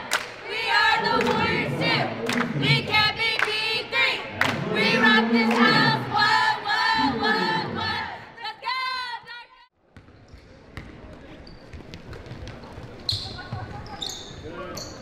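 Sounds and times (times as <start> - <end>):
cheerleaders chanting in unison: 0.0 - 9.5.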